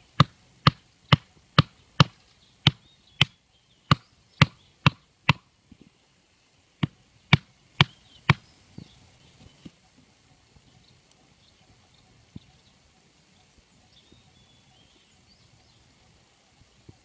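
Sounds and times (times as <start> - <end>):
hatchet knocking on bamboo stake: 0.2 - 5.5.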